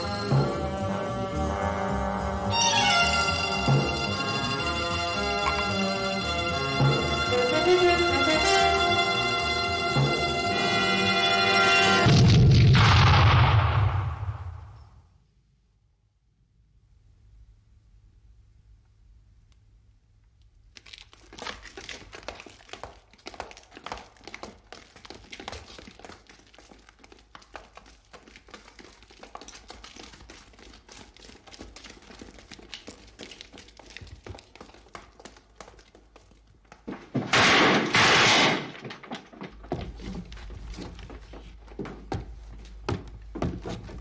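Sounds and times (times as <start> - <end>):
knocks and clatters of boots and weapons: 5.1 - 7.1, 20.5 - 44.0.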